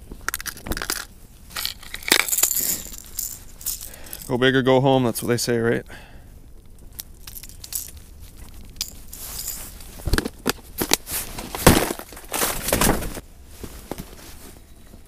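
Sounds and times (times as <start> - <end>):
fishing gear clicks and knocks: 0.0 - 4.4, 6.8 - 13.0.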